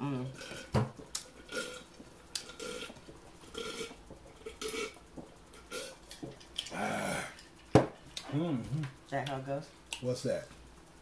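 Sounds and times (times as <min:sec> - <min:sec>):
chewing with crunches: 0:00.4 - 0:08.3.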